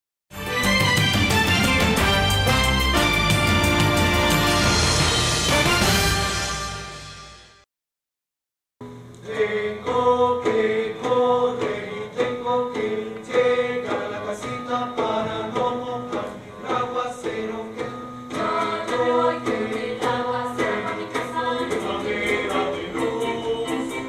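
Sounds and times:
choir singing: 0:09.2 - 0:24.0.

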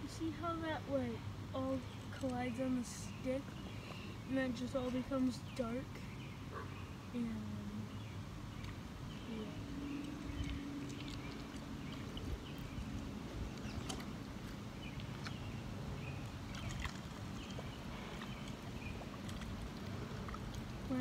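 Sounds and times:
low background noise: 0:00.0 - 0:21.0
stick stirring muddy puddle: 0:09.8 - 0:21.0.

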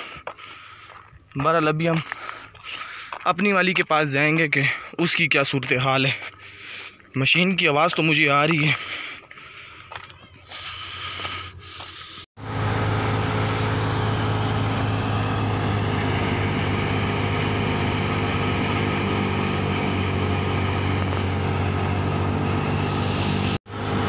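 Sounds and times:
wheat thresher running: 0:11.2 - 0:24.0.

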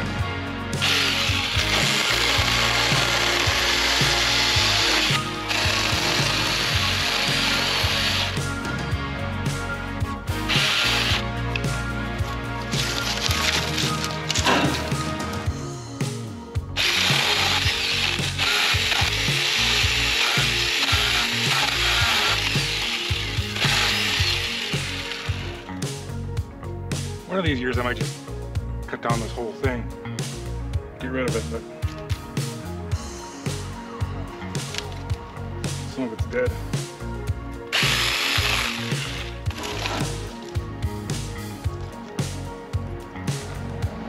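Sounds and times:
background music with steady beat: 0:00.0 - 0:44.0
mini chainsaw cutting branches: 0:00.8 - 0:08.4, 0:10.5 - 0:11.2, 0:12.7 - 0:14.8, 0:16.8 - 0:25.6, 0:37.7 - 0:40.4.

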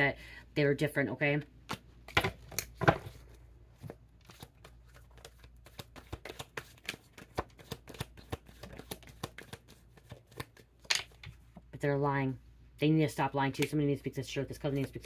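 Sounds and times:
cards shuffling: 0:01.6 - 0:11.5.

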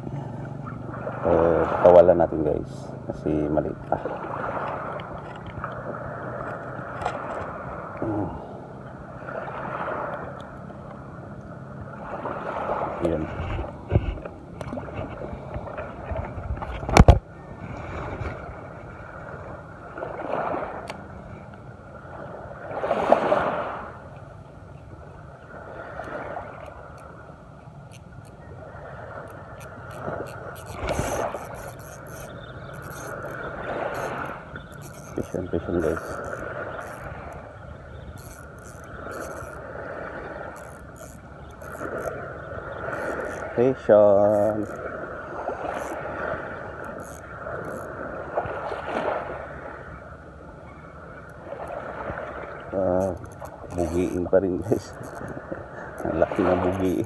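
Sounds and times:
small waves lapping: 0:00.0 - 0:57.0
fishing reel gears whirring: 0:25.3 - 0:48.4, 0:51.0 - 0:57.0
scratchy rasps: 0:29.3 - 0:39.6, 0:40.4 - 0:42.2, 0:42.8 - 0:43.6, 0:44.2 - 0:44.8, 0:45.7 - 0:46.0, 0:46.8 - 0:47.9, 0:52.9 - 0:57.0.

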